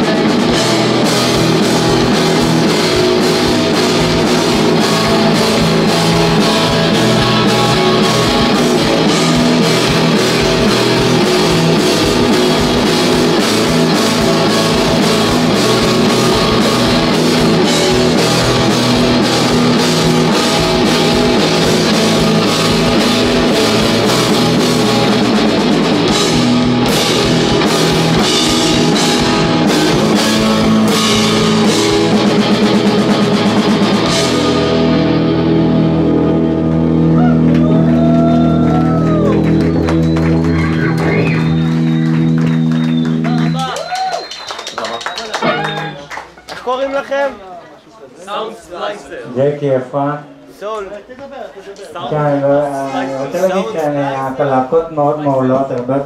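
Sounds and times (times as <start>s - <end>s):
drum hits: 0.0s - 36.0s
rock band playing live: 0.0s - 46.6s.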